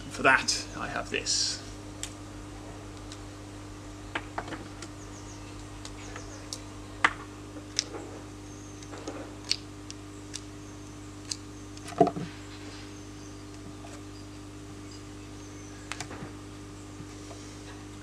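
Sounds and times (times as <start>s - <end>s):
knife cutting twig clicks: 11.2s - 11.9s.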